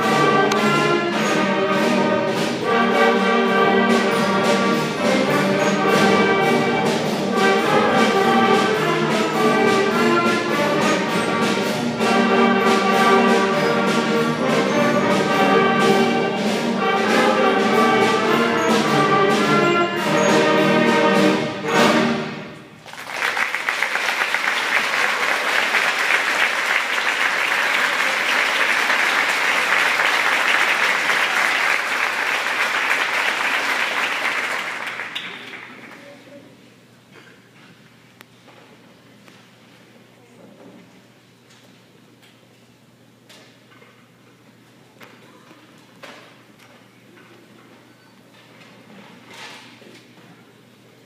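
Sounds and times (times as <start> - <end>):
concert band playing march: 0.0 - 35.7
audience applause: 22.8 - 36.3.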